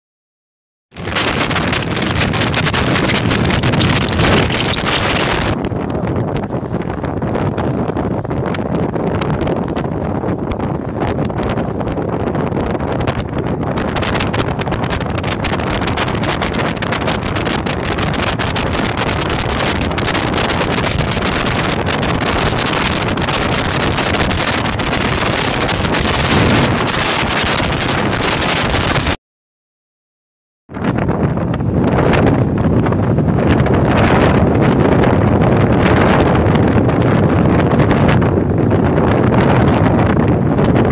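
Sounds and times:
boat engine: 0:01.0 - 0:29.2
rushing water: 0:01.0 - 0:29.2
wind buffeting microphone: 0:01.0 - 0:29.2, 0:30.7 - 0:40.9.

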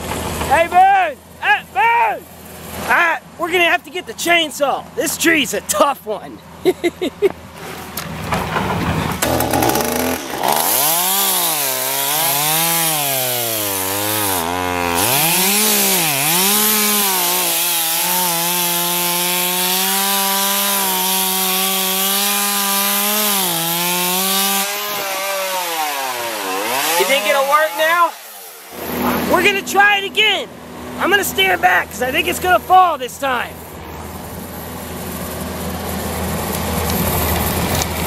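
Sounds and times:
chainsaw cutting tree trunk: 0:00.0 - 0:00.6, 0:08.8 - 0:31.5, 0:34.2 - 0:38.0.

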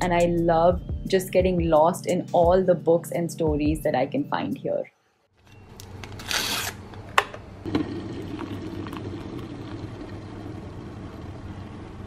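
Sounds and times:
hot water pouring into cup: 0:07.7 - 0:11.1.

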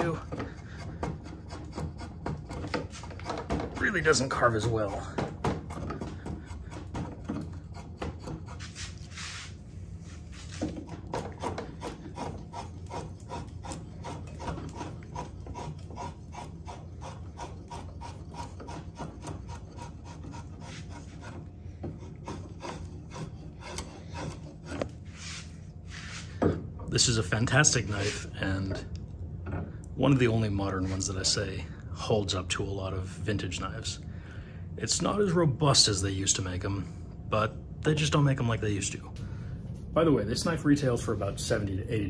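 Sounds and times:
drawknife shaving wood: 0:00.0 - 0:26.3.

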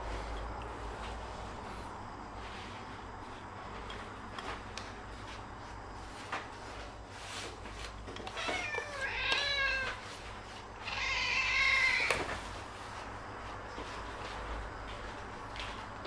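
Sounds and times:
cat meowing: 0:08.3 - 0:10.1, 0:10.8 - 0:12.4.

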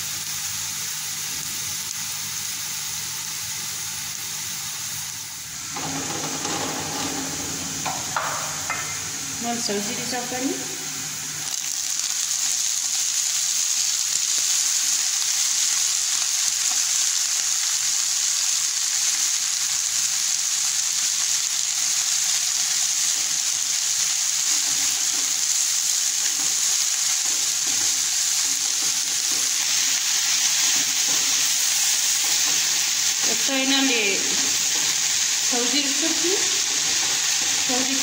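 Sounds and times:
greens sizzling in hot oil: 0:00.0 - 0:38.0.

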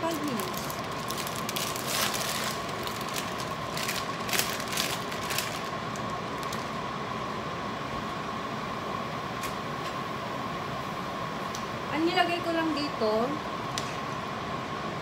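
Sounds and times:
plastic bag crinkling: 0:00.0 - 0:06.8
fan noise with faint whine: 0:00.0 - 0:15.0
spaghetti pouring into pot: 0:00.6 - 0:06.7.

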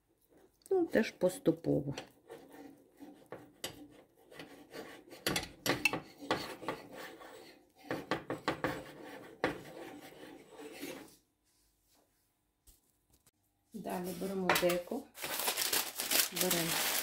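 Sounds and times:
spoon stirring stiff dough: 0:00.0 - 0:11.2.

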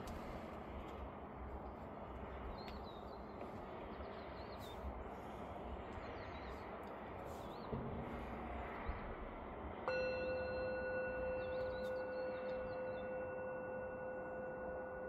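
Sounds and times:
low rumble and hiss: 0:00.0 - 0:15.0
bird chirps: 0:10.4 - 0:13.9.

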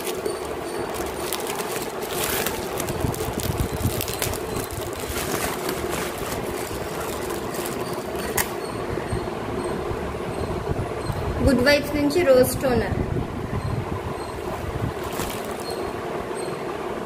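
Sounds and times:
bubble wrap crinkling: 0:00.0 - 0:08.6, 0:14.5 - 0:15.9
steady low hum: 0:00.0 - 0:17.0.

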